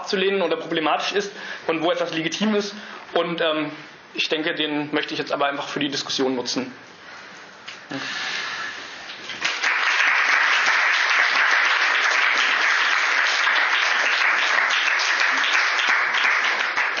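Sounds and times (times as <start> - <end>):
audience applauding: 9.3 - 17.0.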